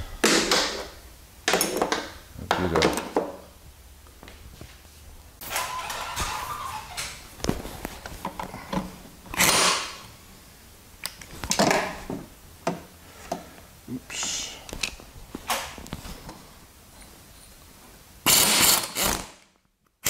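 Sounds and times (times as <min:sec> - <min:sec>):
pneumatic impact wrench bursts: 0:09.4 - 0:10.0, 0:18.2 - 0:19.4.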